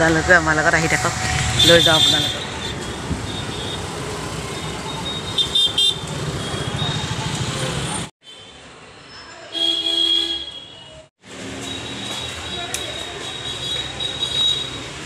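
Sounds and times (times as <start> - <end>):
busy street traffic: 0.0 - 15.0
vehicle horn toots: 1.3 - 3.9, 9.6 - 11.0.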